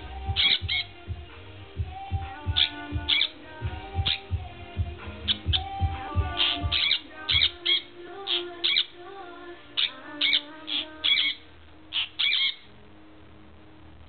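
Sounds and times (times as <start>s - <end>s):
parrot shrill calls: 0.4s - 0.8s, 6.4s - 8.9s, 9.8s - 12.7s.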